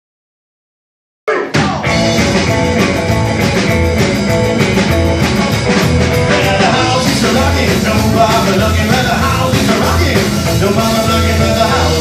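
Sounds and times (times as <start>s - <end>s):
rockabilly band playing: 1.5s - 12.0s.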